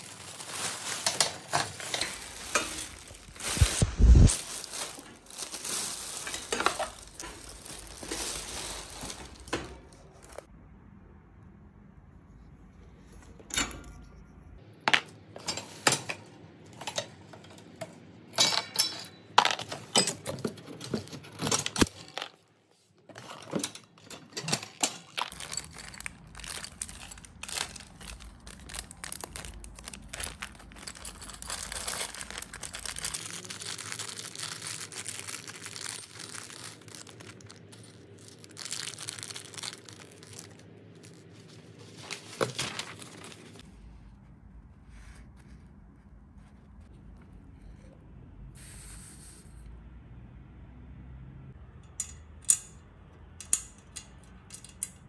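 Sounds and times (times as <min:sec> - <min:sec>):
wrapping rustling and crinkling: 0:00.0 - 0:10.5, 0:19.6 - 0:43.7
small metal screws clinking: 0:23.2 - 0:41.3, 0:53.4 - 0:55.0.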